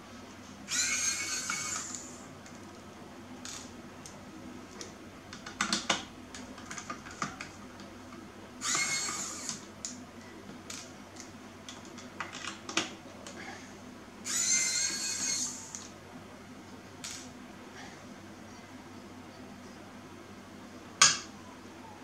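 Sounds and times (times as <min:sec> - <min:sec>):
electric screwdriver whirring: 0:00.7 - 0:02.2, 0:08.6 - 0:09.6, 0:14.3 - 0:15.8.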